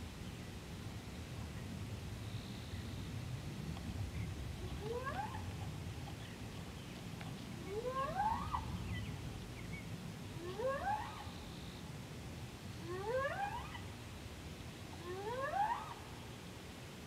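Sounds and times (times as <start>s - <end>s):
low background rumble: 0.0s - 12.9s
animal call rising and wavering: 7.7s - 8.7s, 10.4s - 11.3s, 12.8s - 13.8s, 15.0s - 16.0s.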